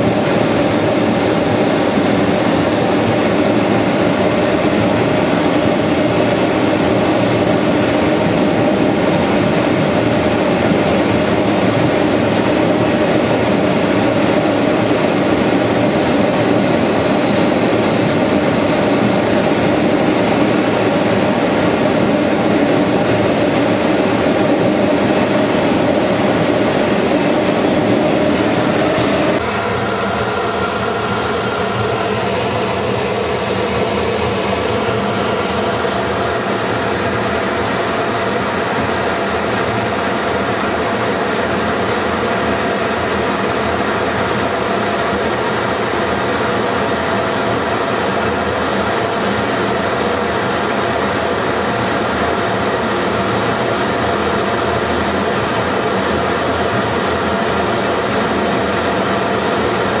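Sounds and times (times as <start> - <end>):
jet engine and airflow noise: 0.0 - 60.0.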